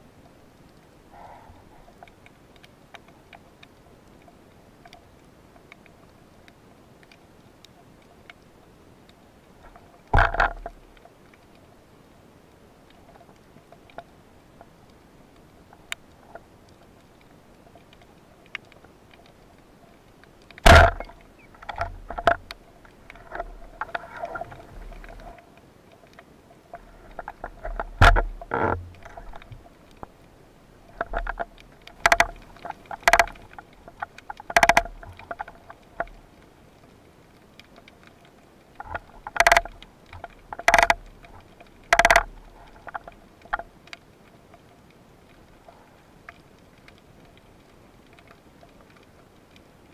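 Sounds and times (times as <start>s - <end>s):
faint steady hiss: 0.0s - 49.9s
underwater knocks and clicks: 9.6s - 11.1s, 20.2s - 25.4s, 26.0s - 30.1s, 30.9s - 36.2s, 37.6s - 44.0s.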